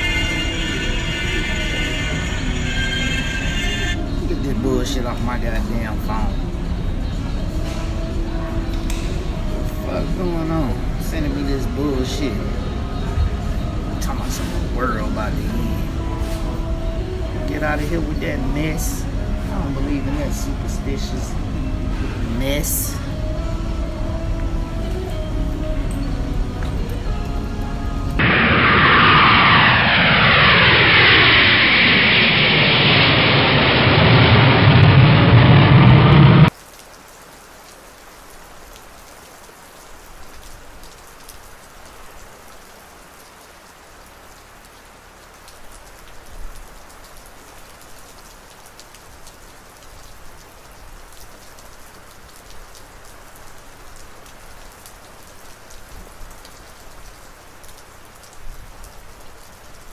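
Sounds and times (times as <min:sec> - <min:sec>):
jet airliner passing overhead: 0:00.0 - 0:36.5
rain pattering: 0:00.0 - 0:59.9.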